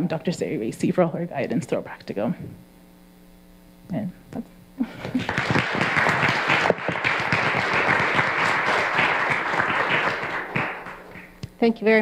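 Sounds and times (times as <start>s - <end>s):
audience applauding: 4.9s - 11.4s.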